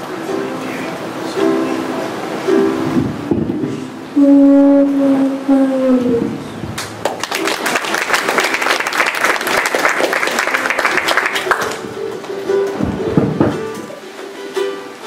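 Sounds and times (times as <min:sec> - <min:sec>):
ukulele notes: 0:00.0 - 0:07.0, 0:09.5 - 0:15.0
audience applauding: 0:06.8 - 0:12.4.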